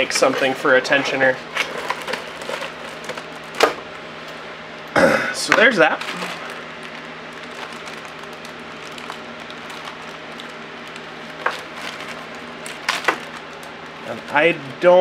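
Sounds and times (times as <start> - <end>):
steady low hum: 0.0 - 15.0
plastic bag crinkling: 1.6 - 3.6, 5.6 - 14.7.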